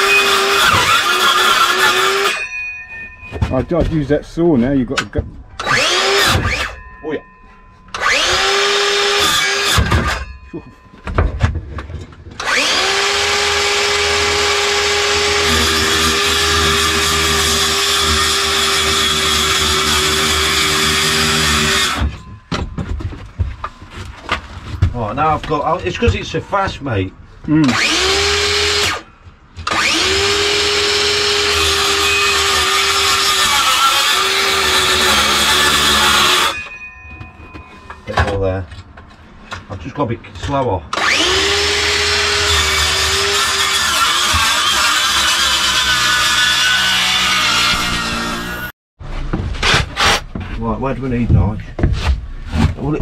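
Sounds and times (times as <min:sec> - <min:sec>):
power saw cutting wood: 0:00.0 - 0:02.5, 0:05.6 - 0:06.9, 0:07.9 - 0:10.4, 0:12.3 - 0:22.3, 0:27.6 - 0:36.8, 0:40.9 - 0:48.7.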